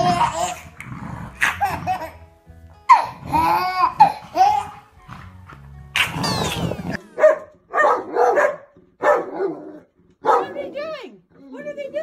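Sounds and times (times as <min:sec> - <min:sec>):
dog barking: 0:07.2 - 0:10.7.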